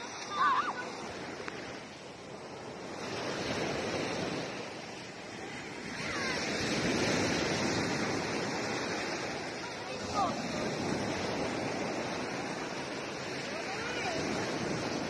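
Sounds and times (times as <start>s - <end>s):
sea waves washing on shore: 0.0s - 15.0s.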